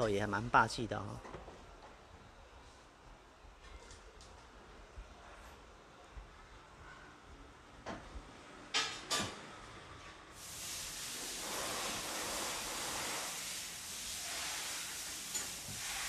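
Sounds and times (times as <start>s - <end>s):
aerosol spray hissing: 10.4s - 16.0s.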